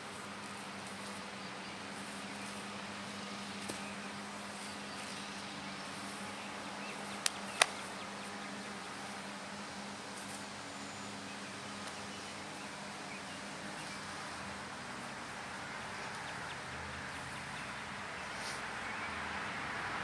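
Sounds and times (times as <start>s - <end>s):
sharp clicks or slaps: 7.2s - 7.8s.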